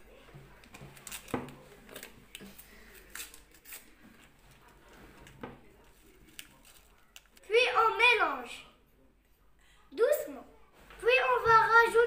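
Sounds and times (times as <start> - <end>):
paper sachet crinkling: 5.9 - 7.5.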